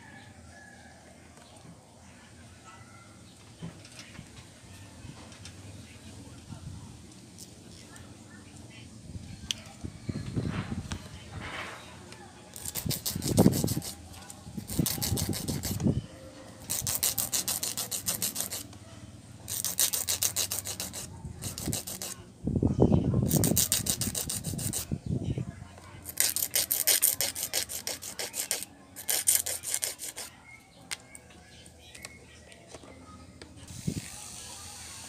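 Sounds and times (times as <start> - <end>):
nail file rasping: 12.6 - 14.0, 14.6 - 15.8, 16.6 - 18.7, 19.5 - 22.2, 23.3 - 24.9, 26.0 - 30.3.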